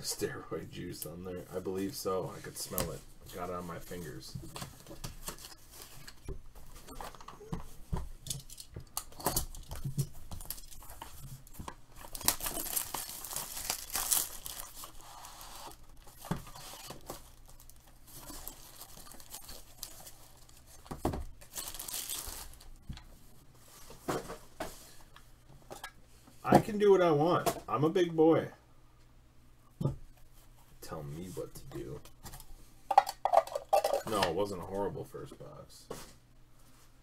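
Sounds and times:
plastic wrap tearing and crinkling: 0:10.4 - 0:22.8.

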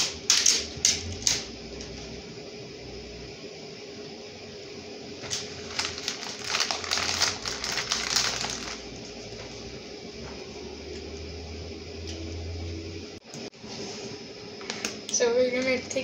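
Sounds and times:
steady low hum: 0:00.0 - 0:16.0
plastic packaging crinkling: 0:05.2 - 0:09.1.

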